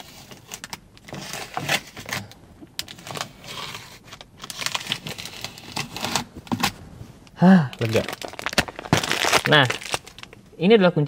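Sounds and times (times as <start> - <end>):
plastic wrap crinkling: 0.0 - 6.8, 7.8 - 10.5.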